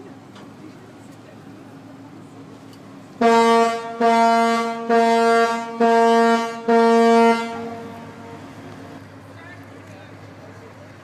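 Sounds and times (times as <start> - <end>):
ship's horn short blasts: 3.2 - 8.6.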